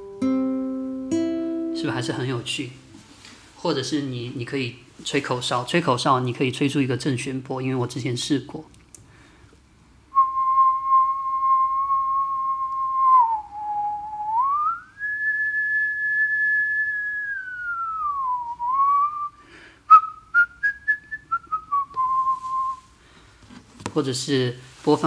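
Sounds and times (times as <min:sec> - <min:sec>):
person whistling: 0:10.1 - 0:22.9.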